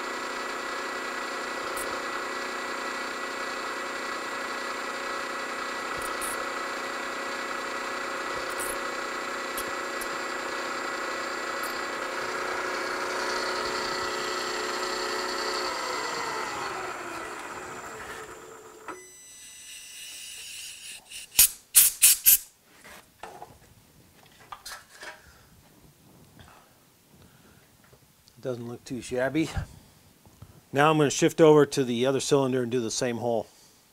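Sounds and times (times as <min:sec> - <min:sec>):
mill spindle whine winding down: 0:00.0 - 0:21.2.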